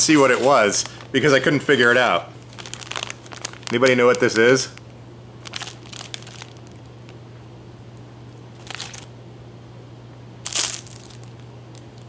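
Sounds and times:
plastic bag and paper crinkling: 0:00.0 - 0:04.8, 0:05.4 - 0:06.9, 0:08.6 - 0:09.1, 0:10.4 - 0:12.0.

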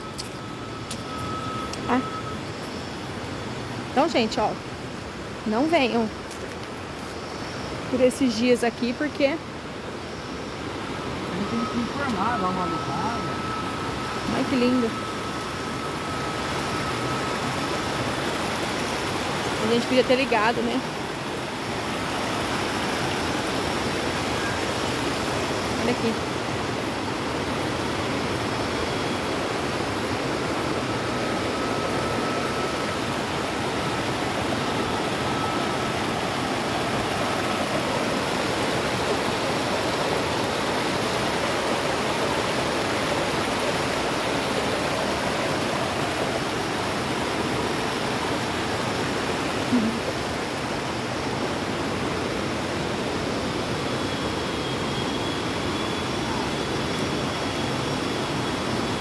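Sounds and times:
water rushing over rocks: 0:16.5 - 0:53.8.

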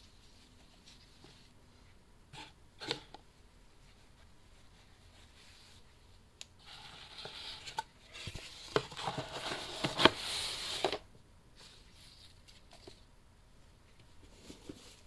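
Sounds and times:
gift box being handled: 0:06.6 - 0:11.0.

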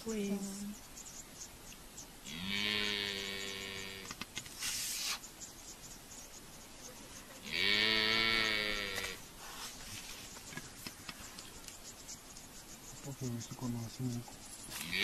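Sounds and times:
buffalo bellowing: 0:02.2 - 0:04.1, 0:07.4 - 0:09.2.

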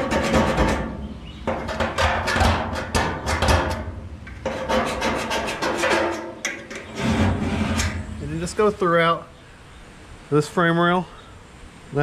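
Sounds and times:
scriber scratching sheet metal: 0:00.0 - 0:08.2.

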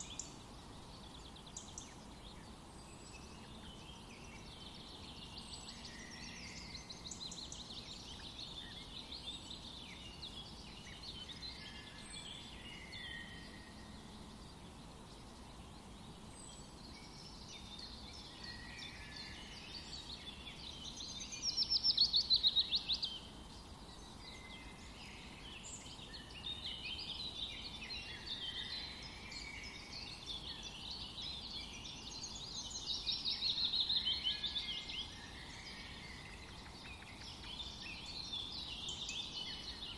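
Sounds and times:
birds chirping and singing: 0:00.0 - 0:39.9.

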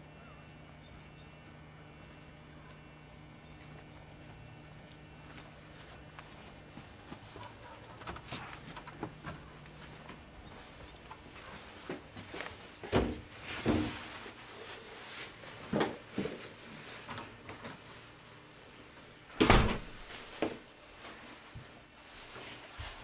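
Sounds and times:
doors opening and closing: 0:19.3 - 0:20.0.

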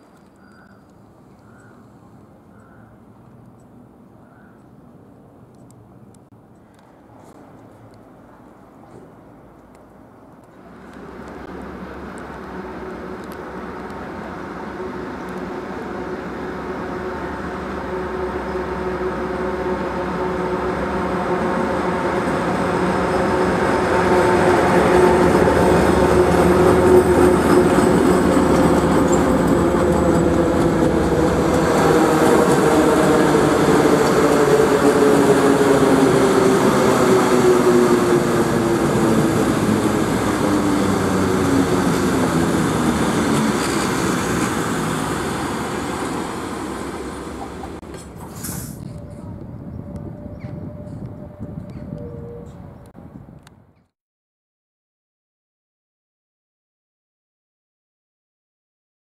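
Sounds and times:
train coaches rolling past: 0:05.2 - 0:53.0
diesel locomotive engine passing: 0:06.7 - 0:53.5.

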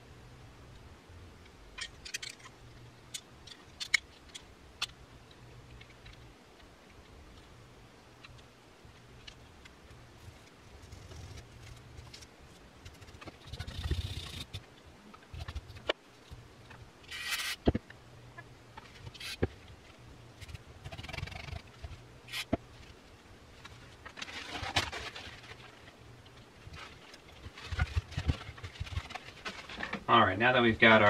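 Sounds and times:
small parts clicking and tapping: 0:01.4 - 0:07.5.

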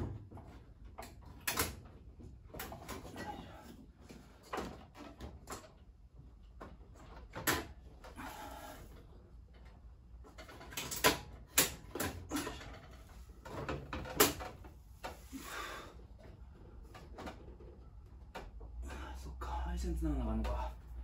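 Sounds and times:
knocks and clicks of tools: 0:00.0 - 0:03.4, 0:09.5 - 0:15.2.

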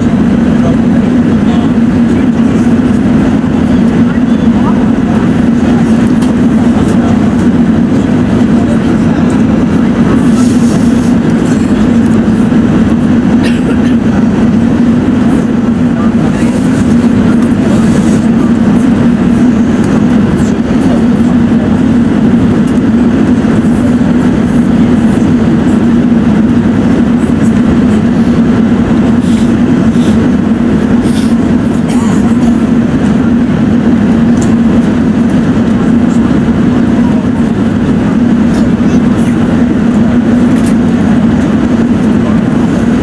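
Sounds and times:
air rushing over airframe: 0:00.0 - 0:43.0
aircraft engine hum: 0:00.0 - 0:43.0.

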